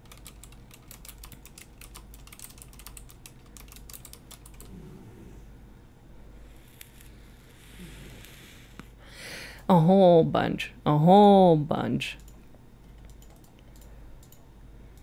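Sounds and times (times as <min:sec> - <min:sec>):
typing on computer keyboard: 0:00.0 - 0:04.7, 0:12.2 - 0:14.4.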